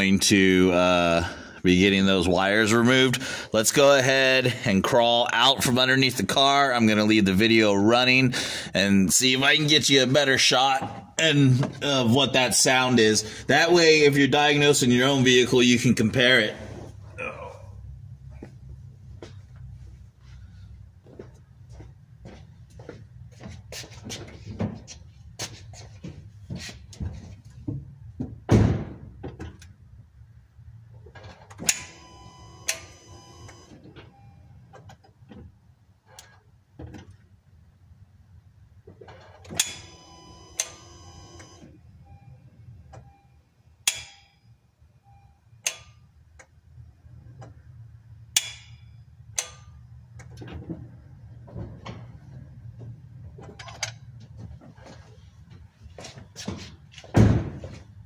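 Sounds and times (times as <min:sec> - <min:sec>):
heavy thump: 0:56.4 - 0:57.9.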